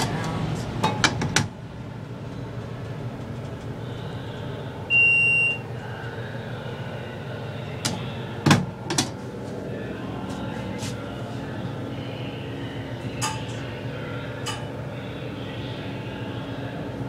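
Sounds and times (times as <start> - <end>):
elevator humming: 0.0 - 17.0
electronic beep: 4.9 - 5.6.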